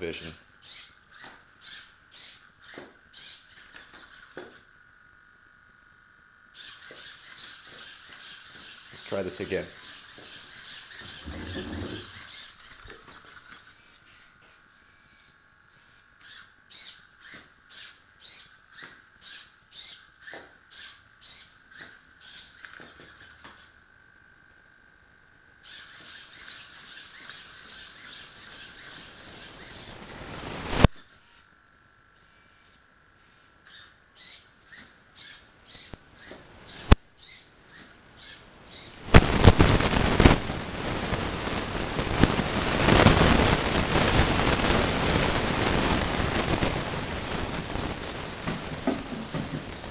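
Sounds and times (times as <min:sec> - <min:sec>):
servos whining: 0:06.6 - 0:23.8
robot feet tapping tile floor: 0:46.4 - 0:49.9.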